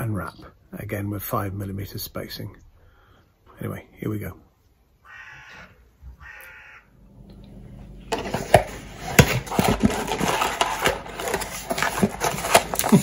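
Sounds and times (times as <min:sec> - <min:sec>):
crow cawing: 0:05.0 - 0:07.0
cardboard rustling: 0:08.1 - 0:13.0.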